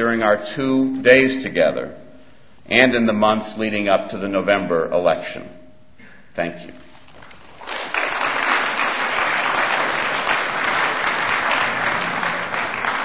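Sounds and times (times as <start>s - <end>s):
audience applauding: 7.2s - 13.0s.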